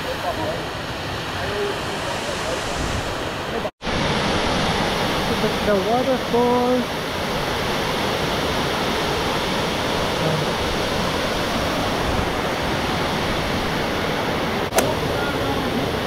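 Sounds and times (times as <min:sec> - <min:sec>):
waterfall rushing: 0:00.0 - 0:16.0
sharp click: 0:14.7 - 0:15.0.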